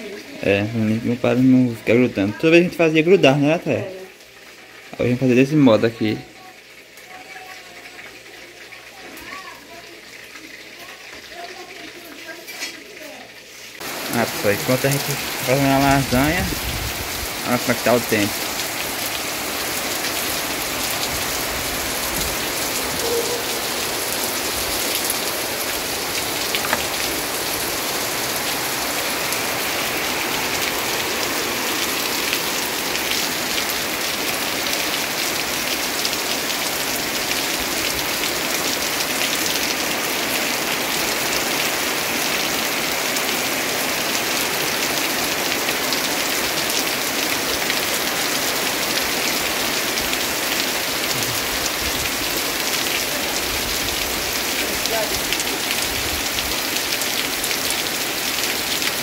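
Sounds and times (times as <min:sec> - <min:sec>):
steady rain hiss: 0:00.0 - 0:59.0
raindrop ticks: 0:26.2 - 0:27.1.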